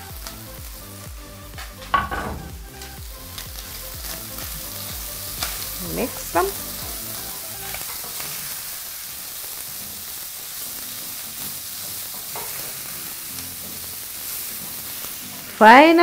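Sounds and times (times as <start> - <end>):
food sizzling in frying pan: 0.0 - 16.0.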